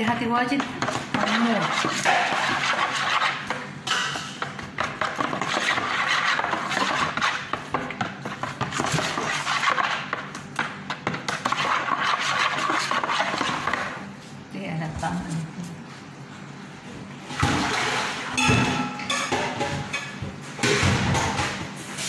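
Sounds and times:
spoon scraping rice in plastic bowl: 0.6s - 3.6s, 4.2s - 14.0s.

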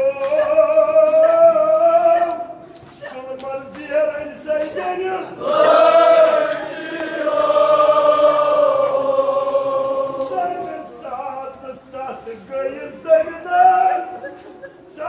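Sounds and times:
man chanting: 0.0s - 5.4s, 10.2s - 14.3s.

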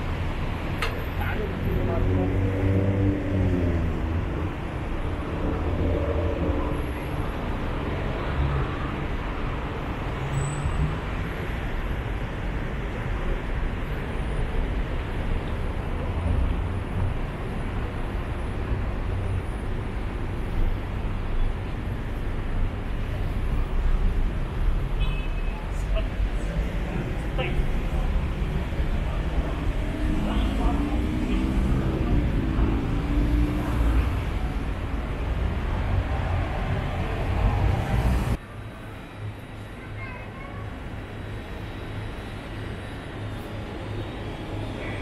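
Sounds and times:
road traffic rumble: 0.0s - 45.0s.

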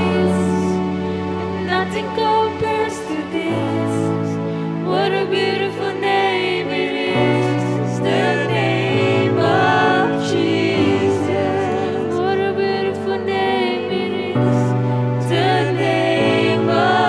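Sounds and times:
voices singing slow melody: 0.0s - 17.0s.

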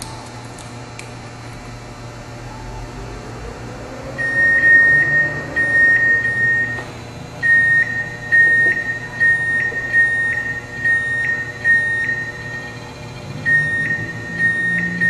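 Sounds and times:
low machine hum: 0.0s - 15.0s
high electronic beeps: 4.2s - 15.0s.

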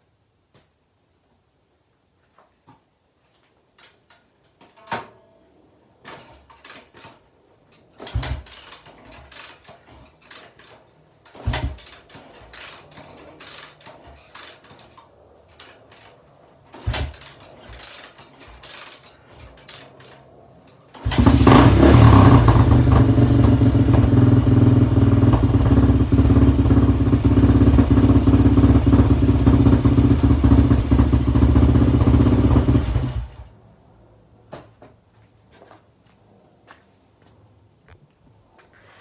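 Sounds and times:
motorcycle kickstarter kicks: 6.0s - 20.2s, 20.8s - 33.2s, 34.5s - 35.8s
engine turning over: 8.0s - 10.7s, 11.3s - 15.0s, 16.7s - 19.8s, 20.9s - 33.5s.

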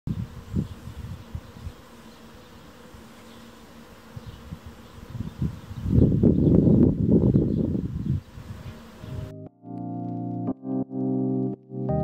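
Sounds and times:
wind rumble on microphone: 0.1s - 1.8s, 4.2s - 9.3s
bee buzzing: 0.1s - 9.5s.

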